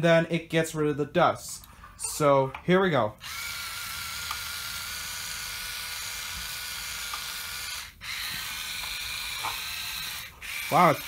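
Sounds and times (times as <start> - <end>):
small electric motor whining: 3.2 - 11.0.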